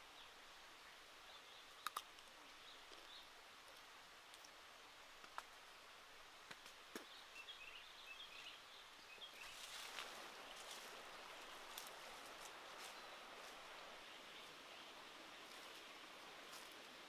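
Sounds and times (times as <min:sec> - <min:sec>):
leaves rustling: 0:09.2 - 0:17.0.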